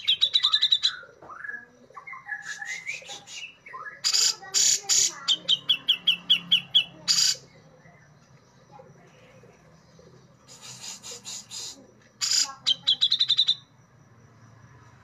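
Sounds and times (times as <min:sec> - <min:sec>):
bird harsh notes: 0:02.4 - 0:07.5, 0:10.5 - 0:13.6.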